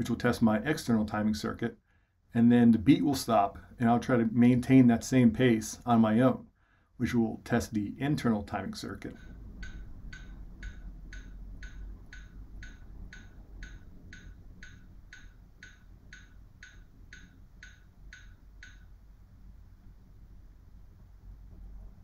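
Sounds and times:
metronome clicking: 0:09.0 - 0:19.0.

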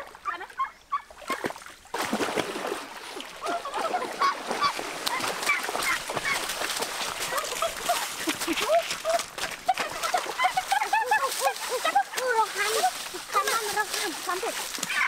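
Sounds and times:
water splashing: 0:00.0 - 0:15.0
birds calling: 0:03.5 - 0:15.0.

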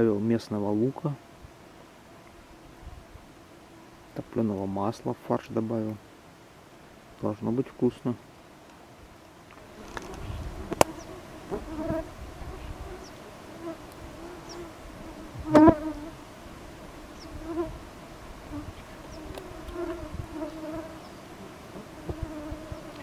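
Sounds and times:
flying insects buzzing: 0:08.3 - 0:23.0.

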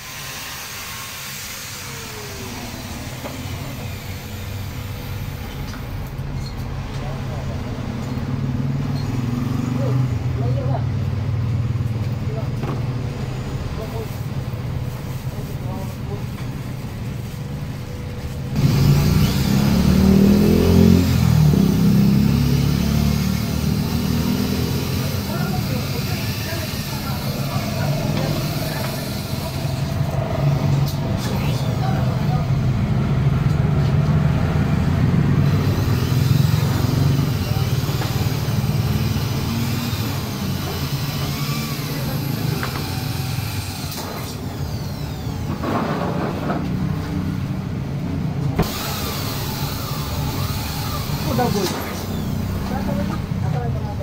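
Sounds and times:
electric drill boring into steel: 0:00.0 - 0:05.9, 0:18.6 - 0:32.4, 0:35.3 - 0:46.0, 0:48.6 - 0:53.3.

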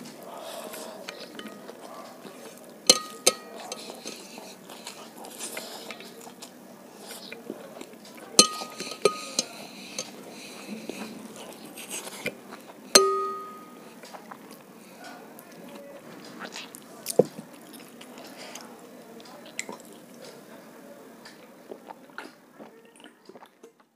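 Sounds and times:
steel plate clinking: 0:02.9 - 0:03.8, 0:08.4 - 0:10.1, 0:13.0 - 0:13.8.

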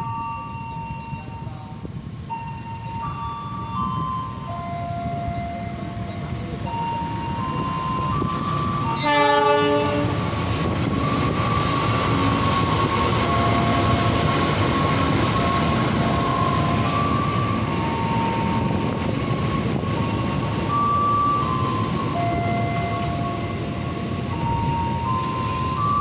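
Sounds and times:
train rumbling past: 0:00.0 - 0:26.0
locomotive horn blast: 0:08.9 - 0:10.3.

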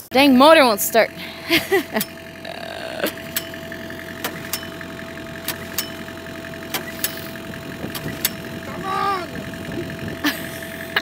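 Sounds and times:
small gasoline engine humming: 0:00.0 - 0:11.0
sharp clicks: 0:04.2 - 0:04.7, 0:05.4 - 0:06.0, 0:06.7 - 0:07.3, 0:07.9 - 0:08.5.

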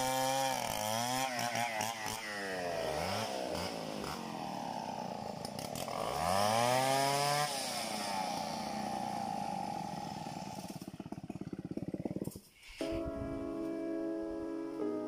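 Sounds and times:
chainsaw revving: 0:00.0 - 0:12.5.

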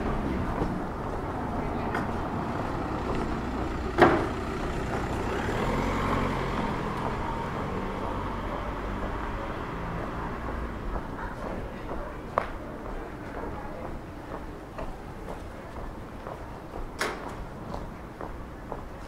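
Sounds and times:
vehicle engine running: 0:00.0 - 0:11.2.

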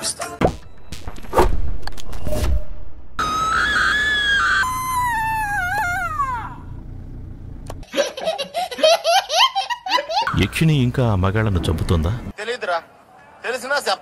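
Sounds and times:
high-pitched scream: 0:03.2 - 0:06.7
low steady rumble: 0:06.0 - 0:07.8.

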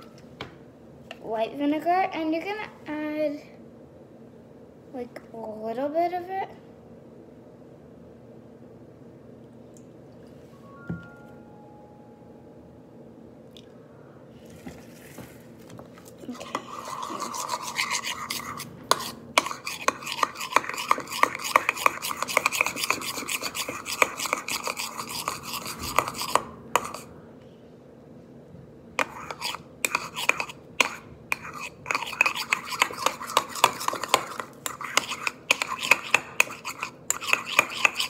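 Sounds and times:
metal spoon scraping bowl: 0:16.2 - 0:27.1, 0:29.0 - 0:38.0.

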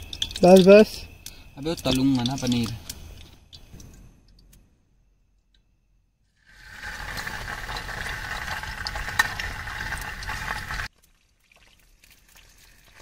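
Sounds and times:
metal ladle stirring: 0:00.0 - 0:00.6, 0:06.6 - 0:10.9
cheese sizzling in hot oil: 0:00.0 - 0:03.8, 0:06.4 - 0:13.0.

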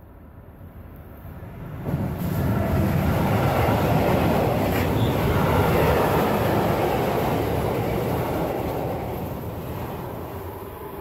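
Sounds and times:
train wheels on rails: 0:01.1 - 0:11.0.

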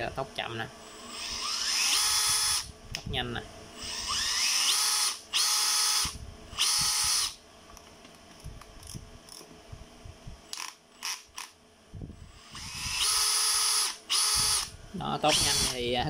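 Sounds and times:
cordless drill whining: 0:01.0 - 0:02.7, 0:03.8 - 0:07.4, 0:12.2 - 0:15.9.

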